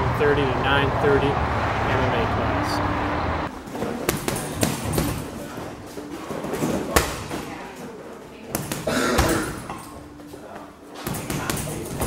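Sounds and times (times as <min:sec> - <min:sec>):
gloves punching heavy bag: 0:03.7 - 0:07.5, 0:08.5 - 0:09.9, 0:11.1 - 0:12.0.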